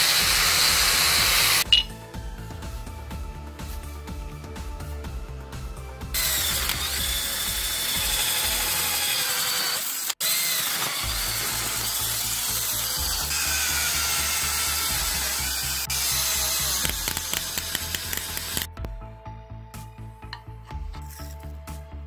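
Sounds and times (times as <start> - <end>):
drill scraping rust off steel: 0.0 - 1.7, 6.1 - 18.7
background music with beat: 0.1 - 8.9, 16.7 - 22.0.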